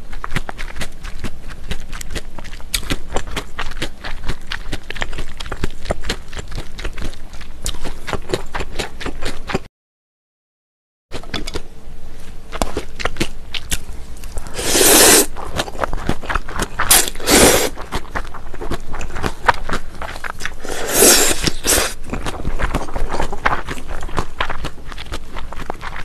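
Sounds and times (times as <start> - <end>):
wet chewing and crunching: 0.0 - 9.7, 11.1 - 26.0
slurping noodles: 14.5 - 15.4, 16.8 - 17.8, 20.5 - 22.0.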